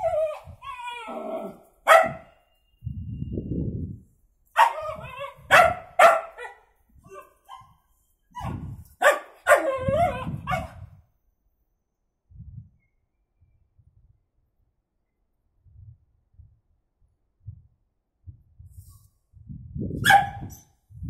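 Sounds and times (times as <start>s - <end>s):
dog barking sharply: 1.9s - 2.3s, 4.6s - 6.6s, 8.4s - 9.7s, 20.0s - 20.5s.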